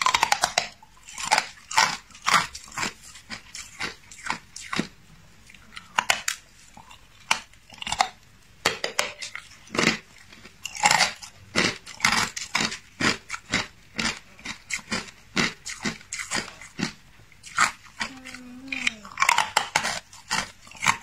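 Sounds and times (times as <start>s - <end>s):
ice crunching between teeth: 0.0s - 4.9s, 9.1s - 21.0s.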